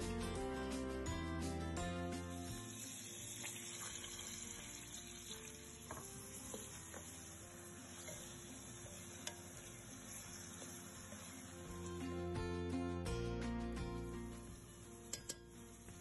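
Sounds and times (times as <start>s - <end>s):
onions sizzling in oil: 2.2s - 12.4s, 14.3s - 16.0s
spoon clicking against pan: 8.9s - 9.6s, 15.1s - 15.6s.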